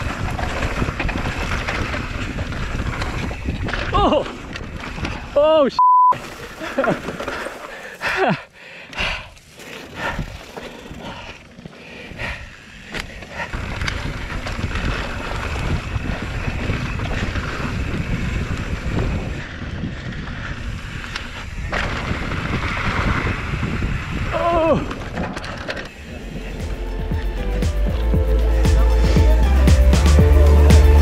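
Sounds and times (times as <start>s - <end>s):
bike rattling over bumps: 0.0s - 5.4s, 6.2s - 27.4s
wind buffeting microphone: 0.0s - 5.4s, 9.9s - 11.4s, 12.0s - 26.6s
bike tyres rolling on dirt: 0.0s - 5.6s, 6.2s - 31.0s.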